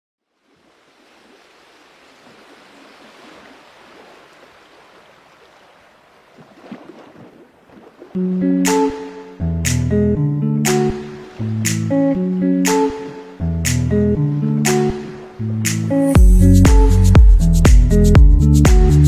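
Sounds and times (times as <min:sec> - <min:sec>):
music with loud chord: 0:08.2 - 0:19.0.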